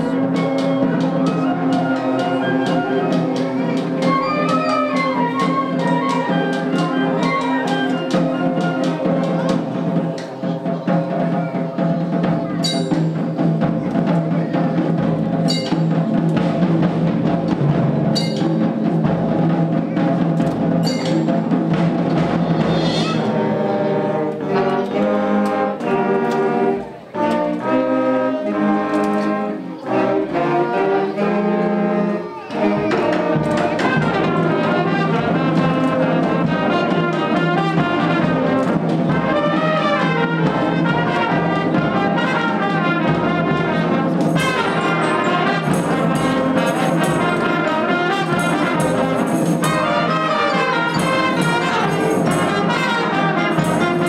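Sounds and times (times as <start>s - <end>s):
concert band playing: 0.0s - 54.0s
percussion strike: 12.6s - 13.2s, 15.4s - 19.3s, 20.4s - 23.3s, 43.1s - 54.0s.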